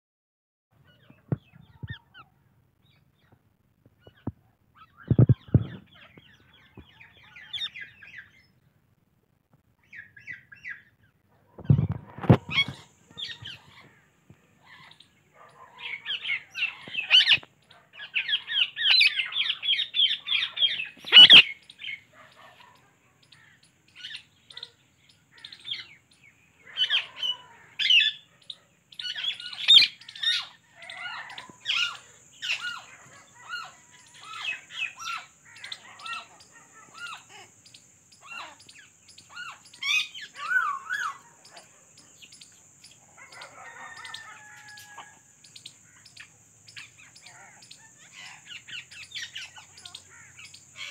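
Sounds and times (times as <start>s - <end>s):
birds chirping: 0.8s - 9.0s, 9.7s - 50.9s.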